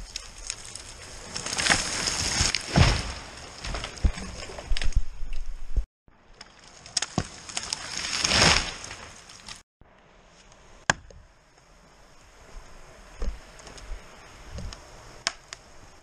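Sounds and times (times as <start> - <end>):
crashing snow and branches: 0.0 - 5.0, 6.2 - 9.6
branches swishing and snapping: 0.1 - 5.0, 6.4 - 9.6
tree trunk thudding on ground: 1.6 - 5.0.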